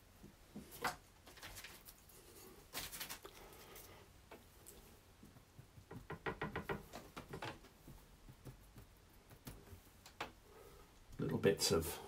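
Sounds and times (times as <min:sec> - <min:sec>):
paintbrush tapping on canvas: 0:05.2 - 0:10.4.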